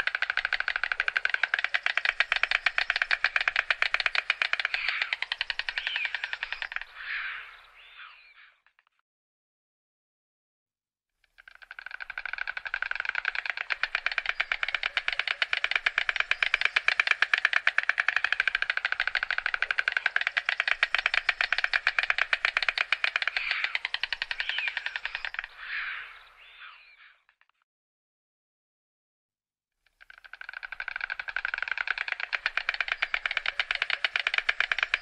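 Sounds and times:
stork clattering its bill: 0.0 - 7.0, 11.3 - 25.6, 30.0 - 35.0.

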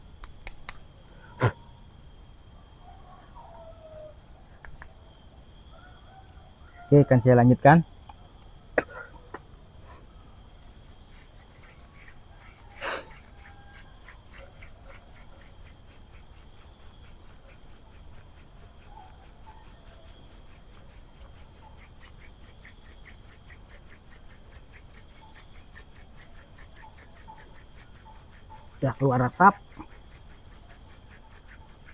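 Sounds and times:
high insect drone: 0.0 - 31.9
wooden spindle scratchy rubbing: 11.0 - 31.9.

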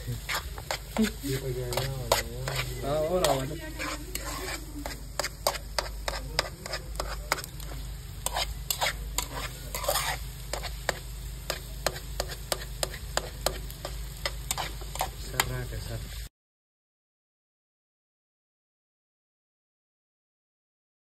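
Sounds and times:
food sizzling faintly: 0.0 - 16.3
spatula scraping metal pot: 0.2 - 15.5.

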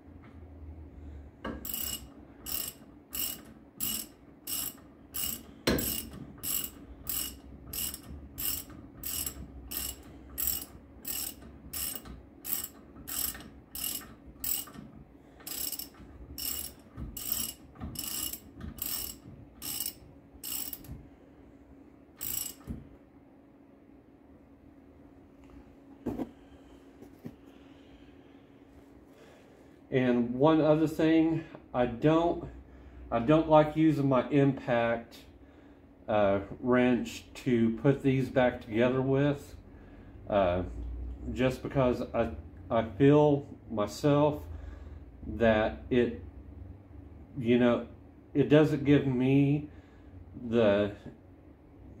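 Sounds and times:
socket ratchet clicking: 1.6 - 14.8, 15.4 - 21.0, 22.2 - 22.7.

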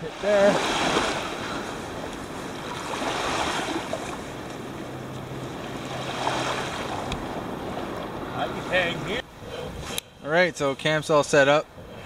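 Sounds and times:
lake waves lapping on shore: 0.0 - 9.2.

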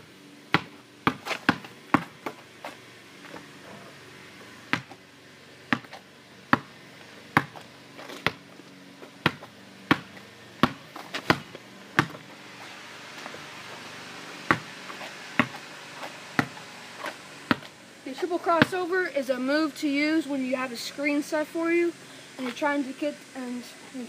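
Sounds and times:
basketball bouncing: 0.5 - 2.4, 4.7 - 5.0, 5.7 - 8.4, 9.2 - 12.2, 14.5 - 15.6, 16.3 - 16.6, 17.5 - 17.7, 18.6 - 18.8.

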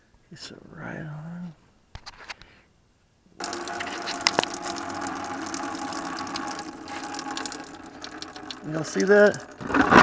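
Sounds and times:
coolant gushing into bucket: 3.4 - 10.0.

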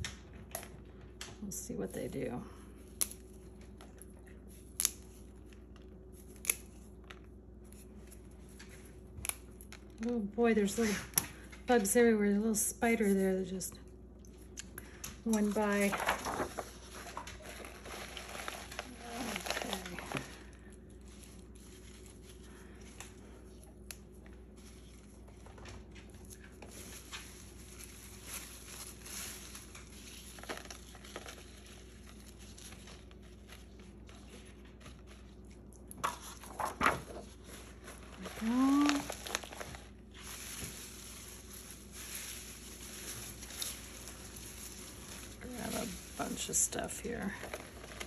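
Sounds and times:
petals and leaves rustling: 15.3 - 23.4, 24.3 - 35.4, 36.7 - 48.0.

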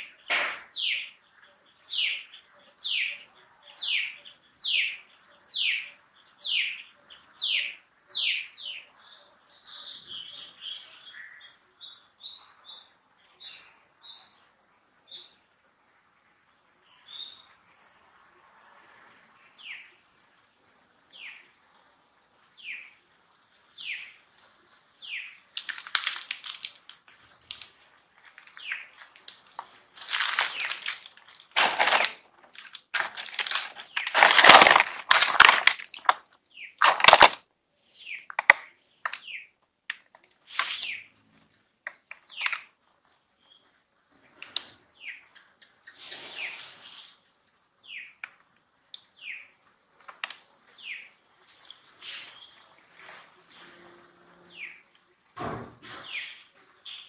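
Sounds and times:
high chirping calls: 0.0 - 14.5, 22.6 - 25.9, 53.5 - 54.9.

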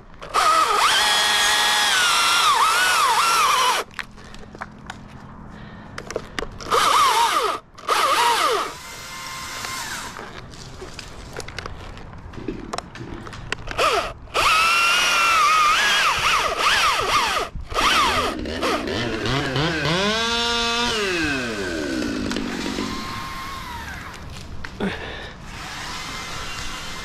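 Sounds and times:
chainsaw cutting wood: 0.2 - 3.9, 6.6 - 10.4, 13.7 - 24.4, 25.5 - 27.0.

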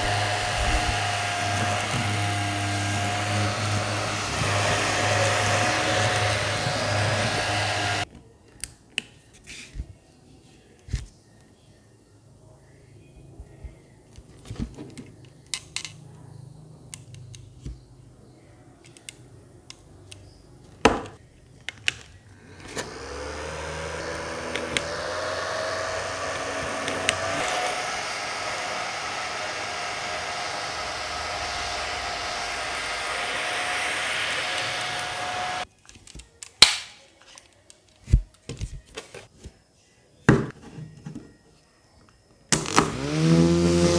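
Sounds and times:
small fan motor humming: 0.0 - 8.0, 22.4 - 35.7, 42.9 - 43.9.

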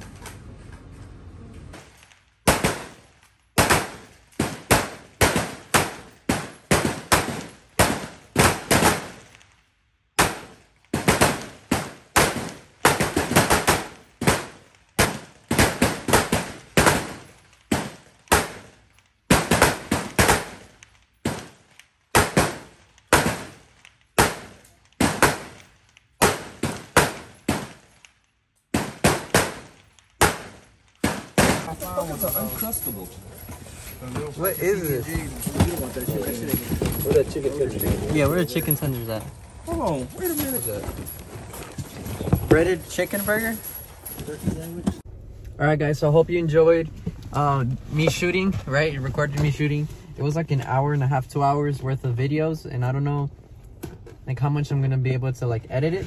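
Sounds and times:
rifle shots with echo: 2.4 - 9.3, 10.2 - 27.9, 28.7 - 31.7.

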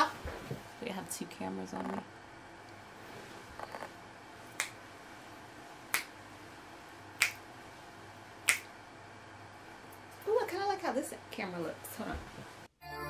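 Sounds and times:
fingers snapping: 4.6 - 4.8, 5.9 - 6.1, 7.2 - 7.4, 8.4 - 8.7.

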